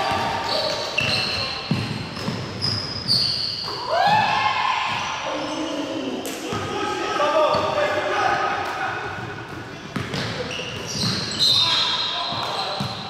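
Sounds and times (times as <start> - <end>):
sneakers squeaking: 0.0 - 6.7, 7.4 - 7.9, 9.2 - 13.0
basketball bouncing on hardwood: 1.7 - 2.5.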